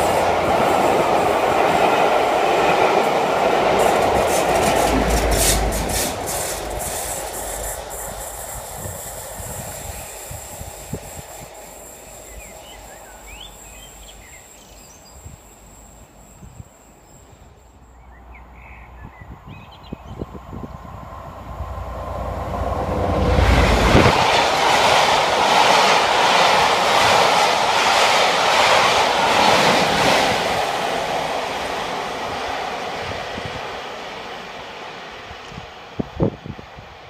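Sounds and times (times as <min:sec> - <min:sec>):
train wheels clattering: 0:00.0 - 0:14.3
locomotive rumble: 0:00.0 - 0:14.6.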